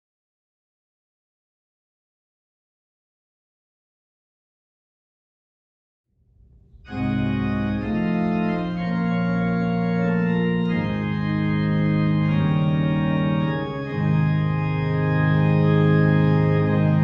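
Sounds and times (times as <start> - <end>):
organ playing held chords: 6.8 - 17.0.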